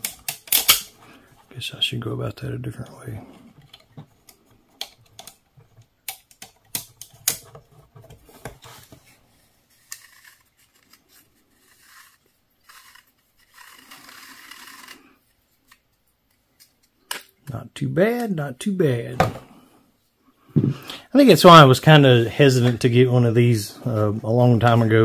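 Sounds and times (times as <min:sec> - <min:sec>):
rustling or scraping: 0:07.4 - 0:17.0.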